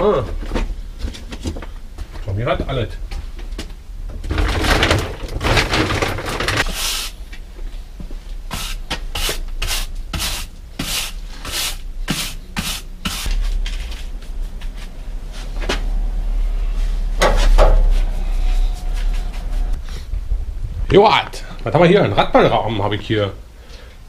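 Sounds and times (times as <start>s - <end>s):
broom sweeping a floor: 6.6s - 7.3s, 8.5s - 15.9s, 16.5s - 20.0s.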